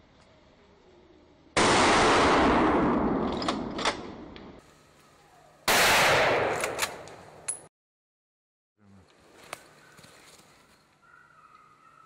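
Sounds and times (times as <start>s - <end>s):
rifle shot echoing: 1.6s - 4.4s, 5.7s - 7.4s.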